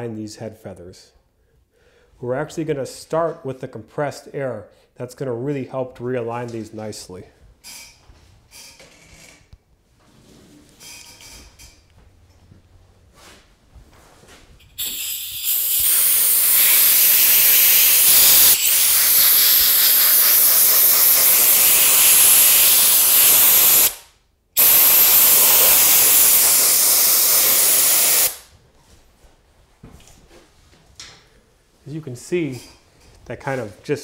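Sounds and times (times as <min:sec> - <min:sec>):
compressed air blow gun hissing: 0:14.8 - 0:24.0, 0:24.6 - 0:28.5.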